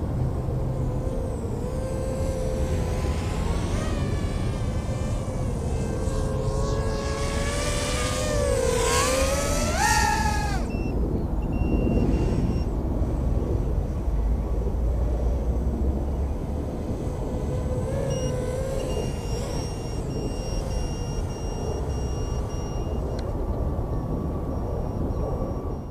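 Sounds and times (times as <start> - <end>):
drone propellers buzzing: 0.0 - 25.9
steady wind noise: 0.0 - 25.9.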